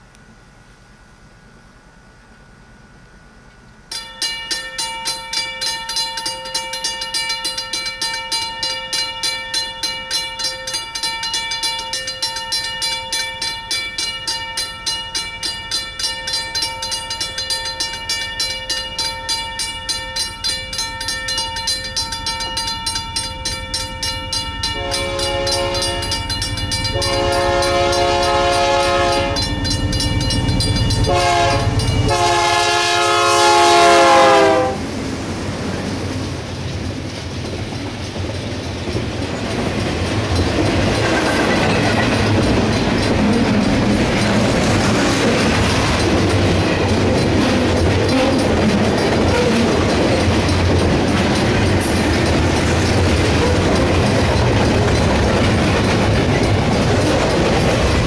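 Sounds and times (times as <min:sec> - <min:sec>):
train rumbling: 0:00.0 - 0:58.0
railroad crossing bell ringing: 0:03.9 - 0:34.9, 0:36.2 - 0:58.0
locomotive air horn blasts: 0:24.8 - 0:26.2, 0:27.0 - 0:29.5, 0:31.1 - 0:34.9.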